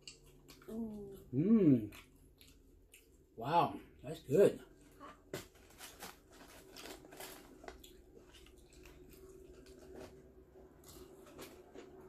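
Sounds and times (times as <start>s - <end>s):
chewing fried chicken: 0.0s - 5.3s, 6.1s - 12.0s.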